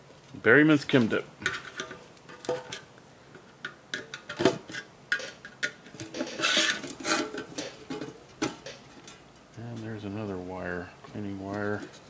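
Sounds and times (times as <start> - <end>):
scraping rustle: 6.0 - 8.2.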